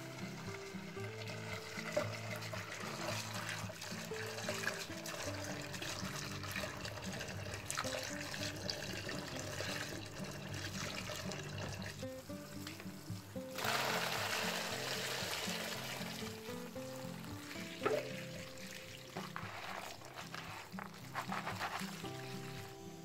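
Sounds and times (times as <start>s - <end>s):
water pouring into a metal pan: 0.0s - 22.8s
background music with low notes: 0.0s - 23.0s
hands swishing beans: 19.2s - 22.9s.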